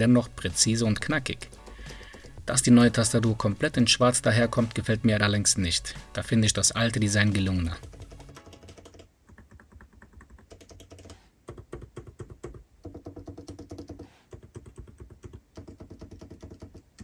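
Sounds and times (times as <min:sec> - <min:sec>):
hard loud laptop keystrokes: 0:01.0 - 0:02.6, 0:07.7 - 0:17.0
soft crisp laptop keystrokes: 0:01.3 - 0:02.5.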